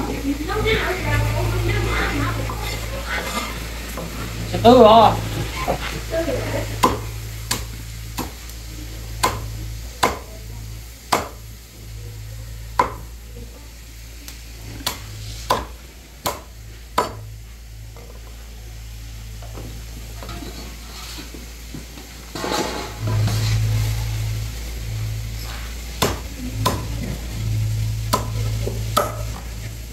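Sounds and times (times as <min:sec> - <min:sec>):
cleaver chopping on wooden block: 0:06.8 - 0:08.4, 0:09.2 - 0:10.3, 0:11.1 - 0:11.4, 0:12.8 - 0:13.0, 0:14.9 - 0:17.2, 0:26.0 - 0:26.8.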